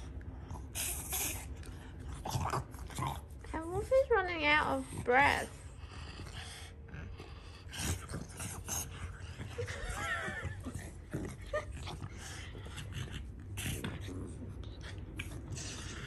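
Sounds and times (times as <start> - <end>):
dogs snorting and grunting: 0.0 - 16.0.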